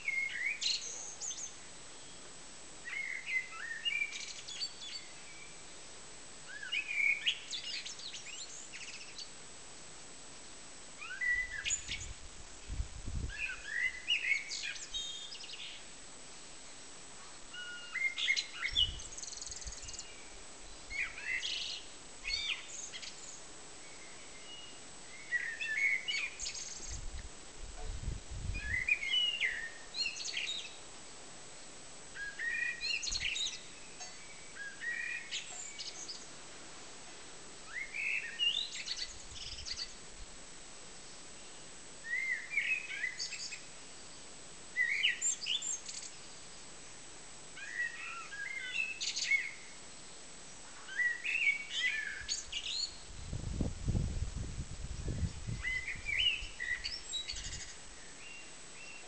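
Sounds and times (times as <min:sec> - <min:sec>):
blackbird singing: 0:00.0 - 0:02.1, 0:06.5 - 0:09.3, 0:11.0 - 0:12.1, 0:13.3 - 0:15.8, 0:17.6 - 0:20.3, 0:20.9 - 0:27.0, 0:28.6 - 0:30.8, 0:32.2 - 0:36.3, 0:37.7 - 0:40.0, 0:42.1 - 0:43.6, 0:44.8 - 0:46.2, 0:47.6 - 0:49.6, 0:50.9 - 0:53.0, 0:55.1 - 0:59.0.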